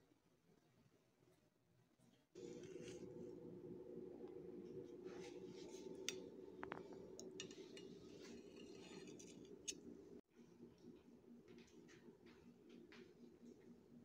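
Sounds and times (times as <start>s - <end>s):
low steady hum: 2.4s - 14.0s
cutlery scraping glass plate: 7.2s - 9.9s.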